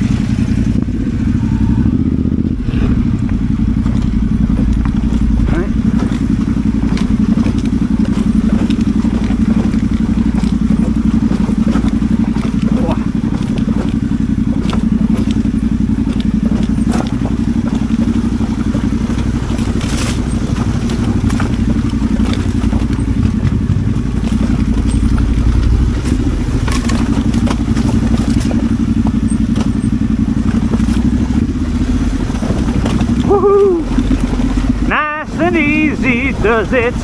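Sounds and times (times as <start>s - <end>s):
motorcycle engine running: 0.0s - 37.0s
light clicks and clatter: 3.2s - 31.1s.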